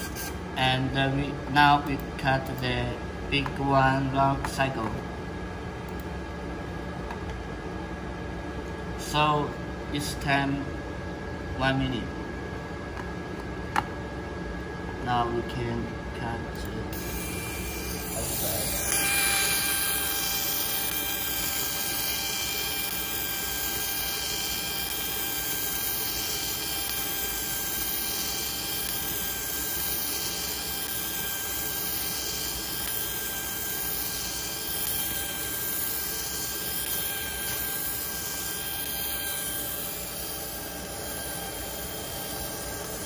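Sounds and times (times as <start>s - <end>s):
cutting machine hissing: 0.0s - 0.4s, 16.9s - 43.0s
machine whine: 0.0s - 43.0s.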